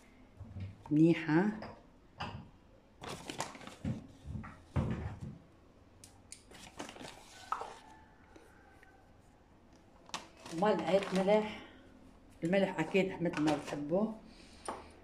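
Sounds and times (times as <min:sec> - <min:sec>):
plastic packaging crinkling: 0:03.0 - 0:04.0, 0:06.4 - 0:07.9, 0:10.0 - 0:11.6, 0:12.8 - 0:13.9.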